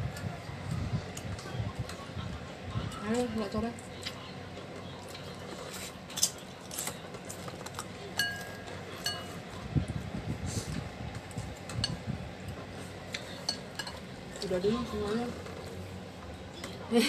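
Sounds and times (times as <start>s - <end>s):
cutlery clinking against ceramic bowl: 7.7s - 9.4s, 13.2s - 14.0s.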